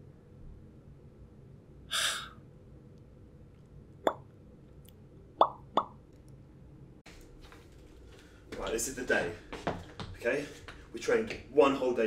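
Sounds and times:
breathy exhale: 0:01.9 - 0:02.4.

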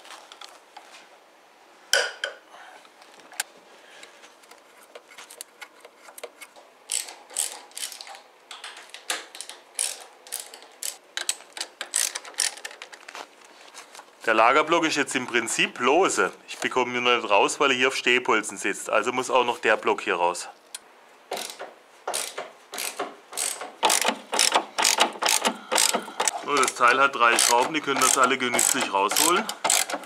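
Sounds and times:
ratchet wrench clicking: 0:06.9 - 0:08.1, 0:09.4 - 0:12.8, 0:21.4 - 0:30.0.

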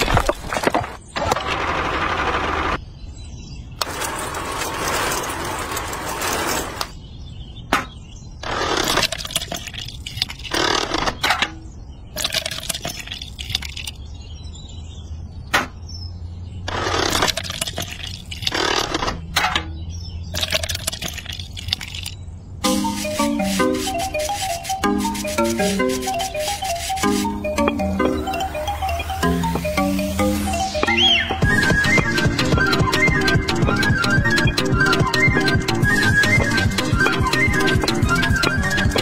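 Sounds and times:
wet cement scraping and slopping: 0:20.4 - 0:22.2.

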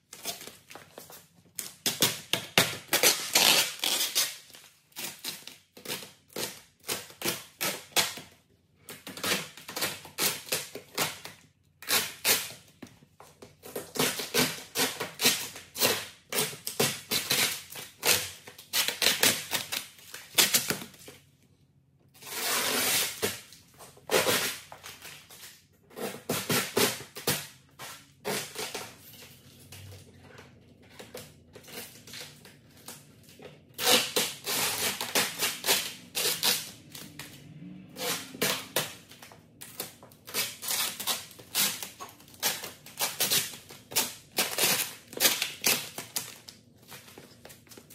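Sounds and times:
plastic film crackling and crinkling: 0:00.0 - 0:21.4, 0:30.8 - 0:47.9.

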